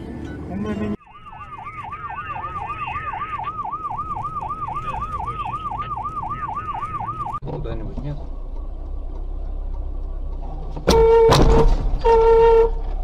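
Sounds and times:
car driving rumble: 0.0 - 13.0
emergency siren yelping: 1.0 - 7.4.

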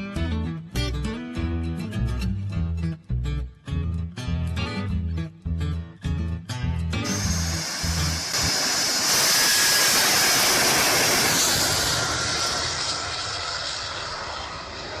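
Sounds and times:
jet engine roaring with afterburner: 7.0 - 15.0.

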